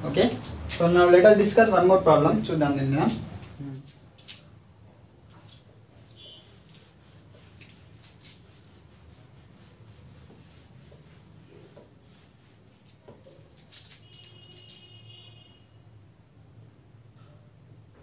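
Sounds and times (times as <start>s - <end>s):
eraser wiping a whiteboard: 5.3s - 15.2s.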